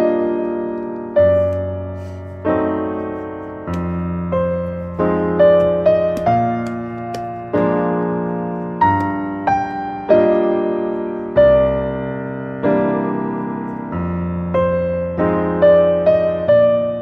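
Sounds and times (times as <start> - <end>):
piano notes and chords: 0.0 - 17.0.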